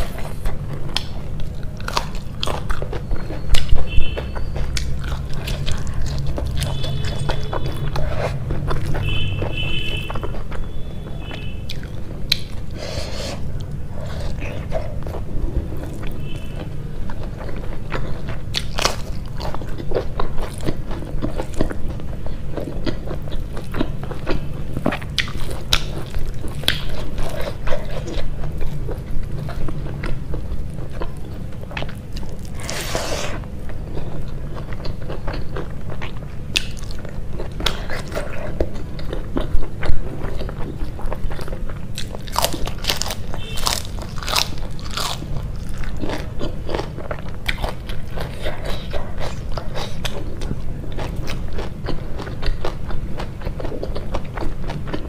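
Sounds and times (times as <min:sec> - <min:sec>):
chewing and wet mouth sounds: 0:00.0 - 0:55.0
crunchy bites into chili: 0:31.7 - 0:55.0.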